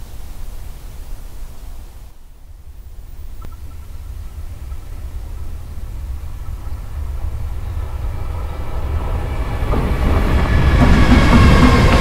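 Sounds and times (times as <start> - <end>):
electric locomotive approaching: 2.4 - 12.0.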